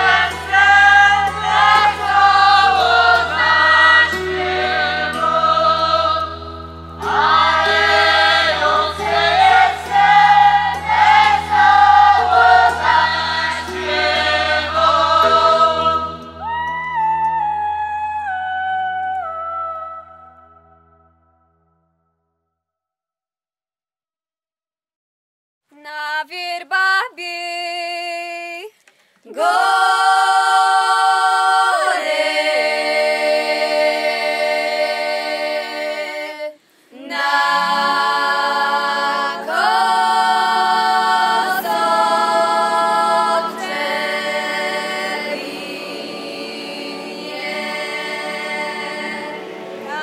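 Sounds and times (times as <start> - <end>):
group singing a cappella: 0.0 - 16.8, 29.3 - 50.0.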